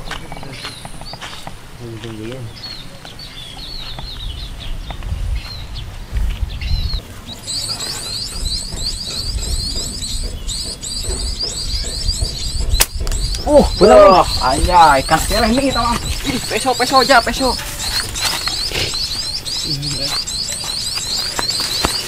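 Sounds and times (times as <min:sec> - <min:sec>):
small birds twittering: 0:00.0 - 0:22.0
slingshot snap: 0:12.8 - 0:13.4.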